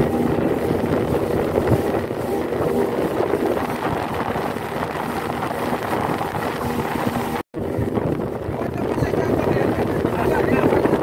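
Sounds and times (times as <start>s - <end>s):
outboard motor running: 0.0s - 11.0s
wind buffeting microphone: 0.0s - 11.0s.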